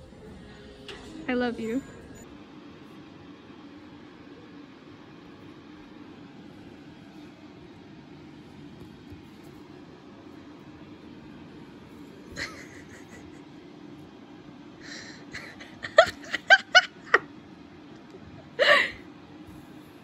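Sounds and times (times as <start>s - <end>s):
person giggling: 12.2s - 13.6s, 14.8s - 17.4s
breathy laugh: 12.3s - 13.6s, 14.8s - 17.3s.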